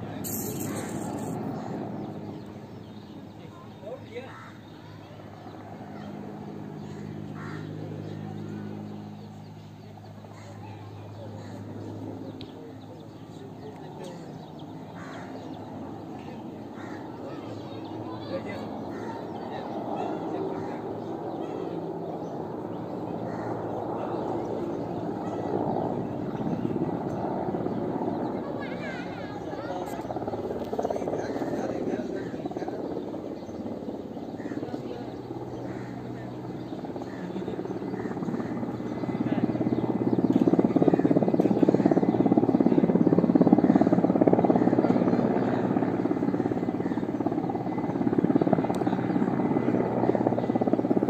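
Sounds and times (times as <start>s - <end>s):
birds calling faintly: 0.0s - 51.0s
distant helicopter droning: 0.0s - 51.0s.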